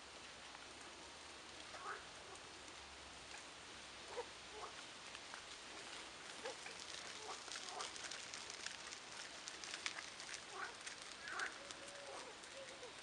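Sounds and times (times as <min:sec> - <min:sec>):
steady outdoor hiss: 0:00.0 - 0:13.0
light scattered ticks: 0:00.1 - 0:13.0.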